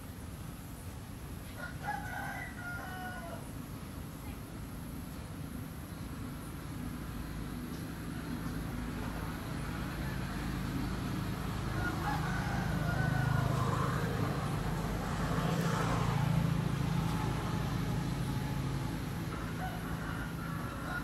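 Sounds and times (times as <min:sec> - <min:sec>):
low engine hum: 0:02.5 - 0:21.0.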